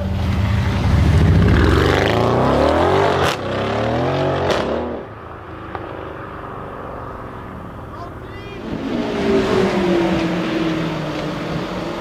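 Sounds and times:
car engine accelerating hard: 0.1 - 5.1, 8.6 - 12.0.

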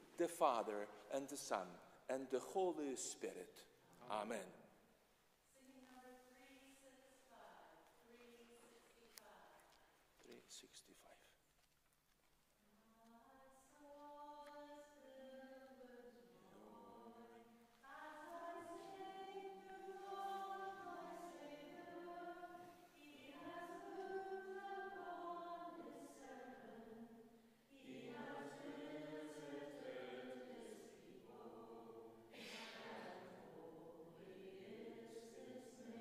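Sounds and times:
congregation singing a hymn: 14.0 - 36.0.

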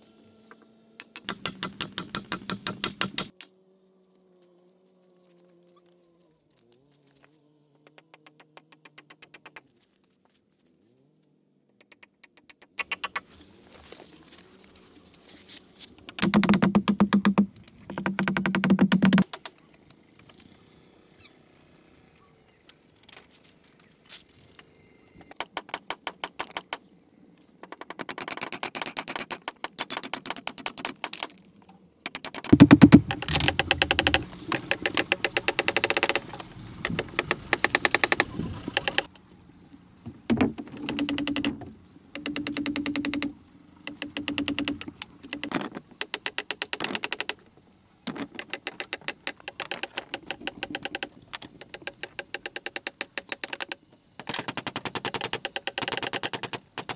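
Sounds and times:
canes rattling on bamboo floor: 16.0 - 19.5, 32.1 - 39.1, 43.9 - 47.4, 48.1 - 56.9.

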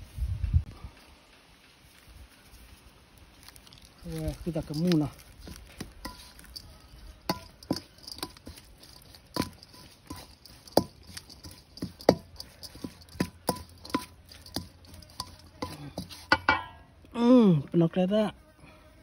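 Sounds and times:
metal spoon clinking in bowl: 4.7 - 16.8.

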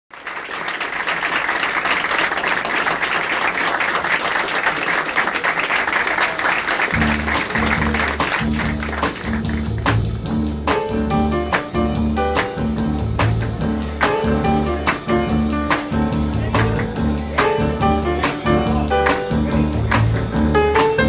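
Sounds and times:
audience applauding: 0.1 - 10.2, 13.2 - 21.0
music with plucked bass line: 7.0 - 21.0.

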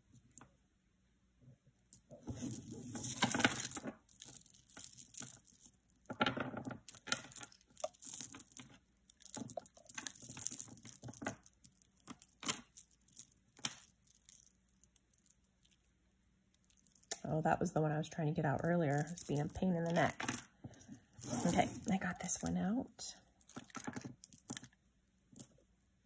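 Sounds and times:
beads rustling: 1.9 - 17.4, 18.4 - 25.8
necklaces and chains clicking: 2.0 - 6.0, 6.8 - 15.9, 18.9 - 22.0.

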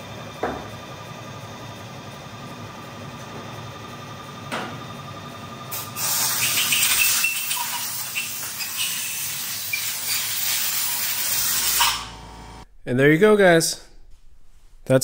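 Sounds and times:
spraying hiss: 5.7 - 12.0
low steady hum: 12.1 - 15.0.

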